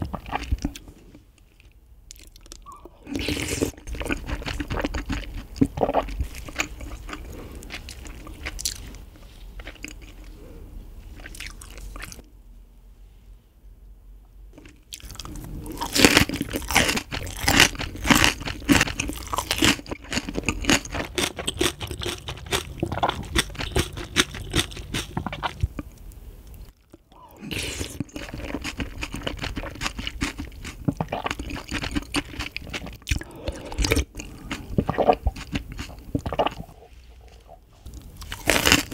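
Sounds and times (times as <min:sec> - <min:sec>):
wet crunching and chewing: 0:00.0 - 0:10.4, 0:11.2 - 0:12.3, 0:14.6 - 0:38.9.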